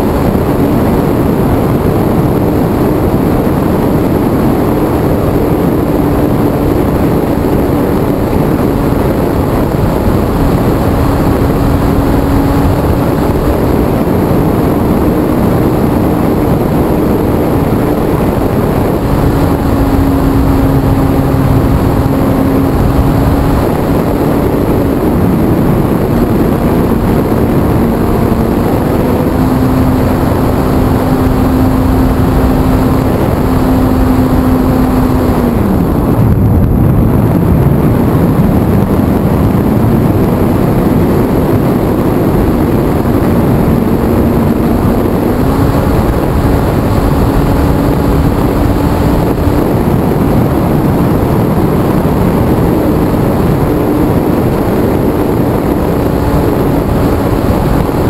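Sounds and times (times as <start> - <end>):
wind rushing on microphone: 0.0 - 58.0.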